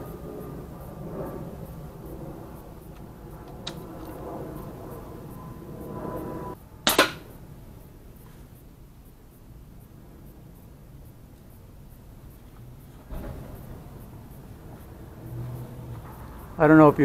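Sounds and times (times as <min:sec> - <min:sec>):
air rifle firing: 0:06.8 - 0:07.3.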